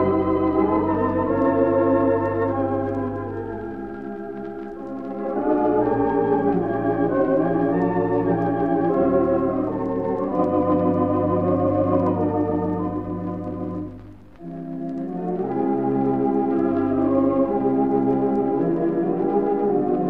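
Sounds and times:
pipe organ playing slow melody: 0:00.0 - 0:20.0.

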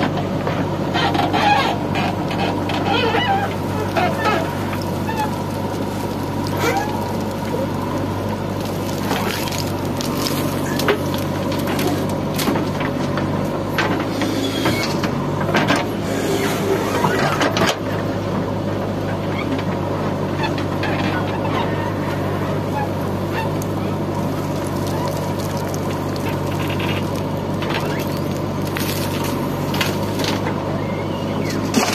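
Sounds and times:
diesel engine running: 0:00.0 - 0:31.9
falling soil: 0:02.5 - 0:15.2, 0:22.5 - 0:30.7.

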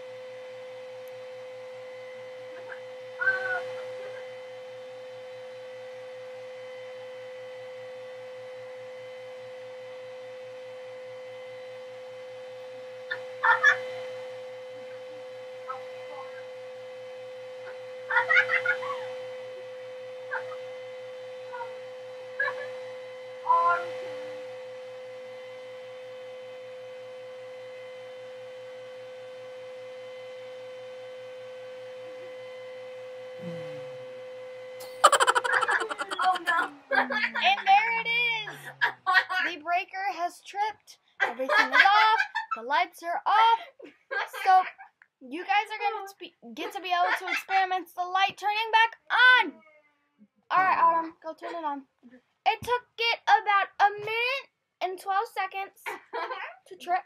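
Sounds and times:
electrical hum: 0:34.8 - 0:39.4.

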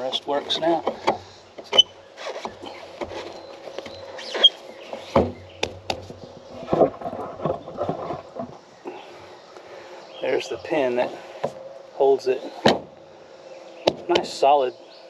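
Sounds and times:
heavy thump: 0:05.0 - 0:08.6, 0:12.6 - 0:13.0.

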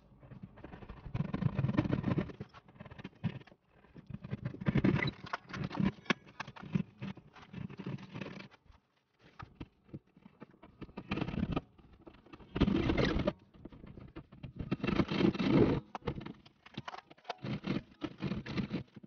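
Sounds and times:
knife scraping drywall: 0:14.4 - 0:16.4, 0:17.4 - 0:19.0.

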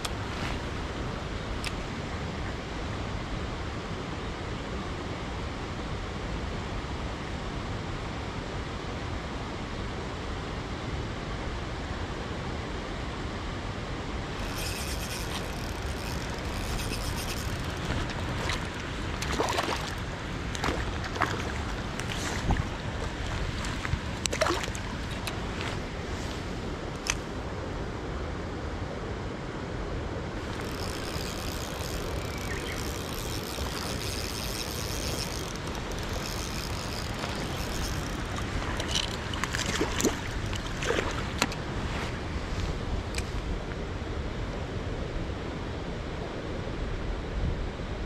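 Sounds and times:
running water hiss: 0:30.4 - 0:42.2.

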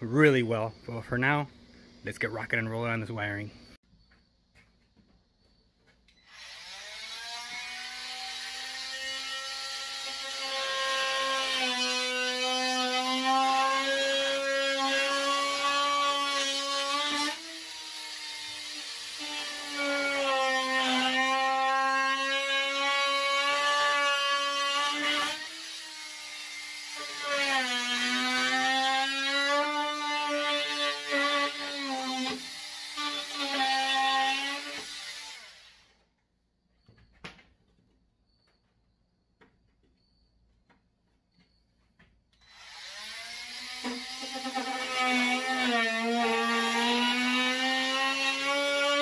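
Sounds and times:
power saw whining: 0:06.1 - 0:20.2.

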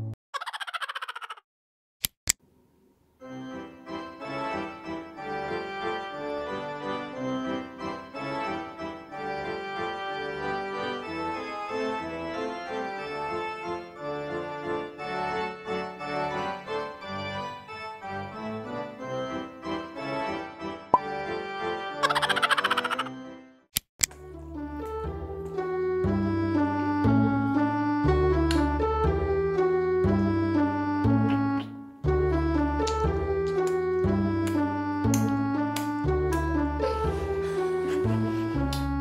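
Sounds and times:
instrumental music: 0:24.1 - 0:39.0.

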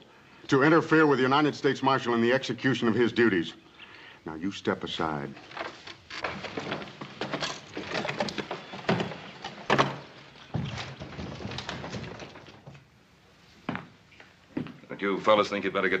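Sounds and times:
wooden knocks and clatter: 0:05.3 - 0:12.9.

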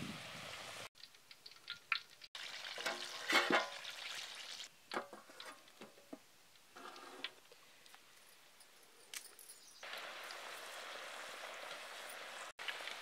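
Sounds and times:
food sizzling in hot oil: 0:00.0 - 0:04.7, 0:09.8 - 0:13.0
light metal clinks: 0:07.8 - 0:09.8.

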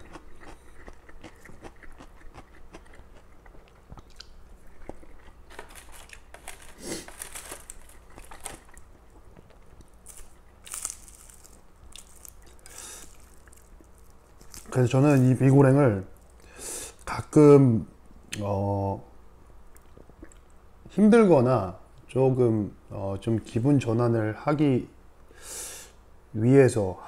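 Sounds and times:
chewing crunchy noodles: 0:00.0 - 0:17.1.

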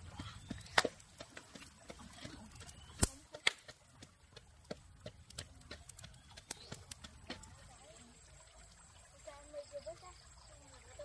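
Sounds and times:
sharp clicks and snaps: 0:02.6 - 0:03.7.

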